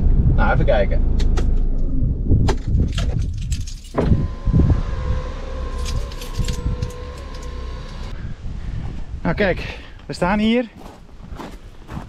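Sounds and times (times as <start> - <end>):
keys jangling and clicking: 2.9 - 4.0, 5.7 - 8.1
electronic warning tone: 4.0 - 8.1.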